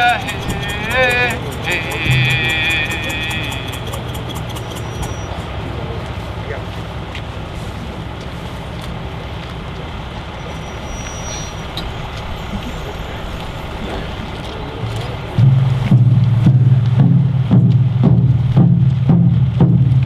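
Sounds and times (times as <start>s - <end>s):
loud drumming with music: 0.0s - 5.3s, 15.4s - 20.0s
steady low rumble: 0.0s - 10.9s, 11.5s - 20.0s.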